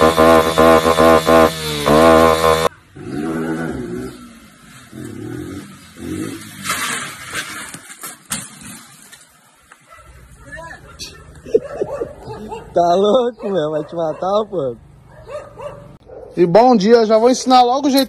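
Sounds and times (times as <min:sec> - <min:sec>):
motorcycle engine revving: 0:00.0 - 0:07.8.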